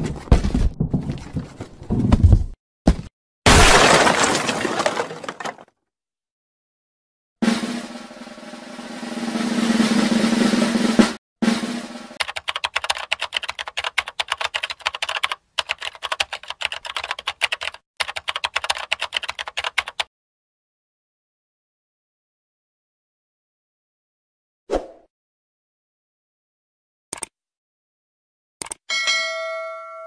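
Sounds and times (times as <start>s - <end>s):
rapid typing clicks: 12.2s - 20.1s.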